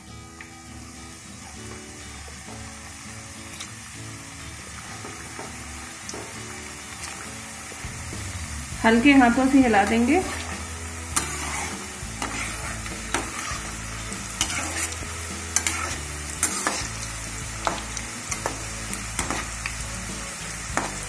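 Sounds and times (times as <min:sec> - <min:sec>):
dough deep-frying in sizzling oil: 0:00.0 - 0:21.0
slotted spoon scraping a pan: 0:09.8 - 0:19.6.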